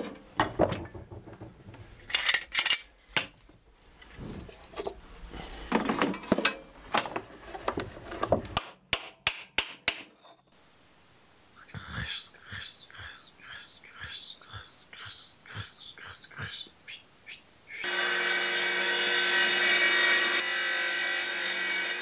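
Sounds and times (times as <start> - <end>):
wooden knocks: 0.4 - 1.9
metal clinks: 2.0 - 3.4.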